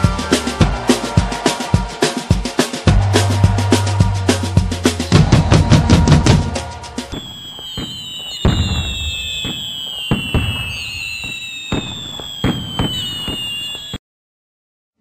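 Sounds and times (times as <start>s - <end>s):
fireworks whistling: 5.0s - 14.0s
fireworks bangs: 5.2s - 14.0s.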